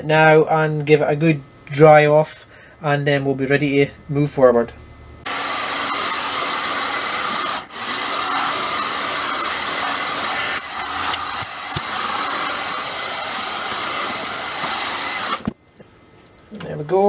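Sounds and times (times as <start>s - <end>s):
heat gun blowing air: 5.3s - 15.6s.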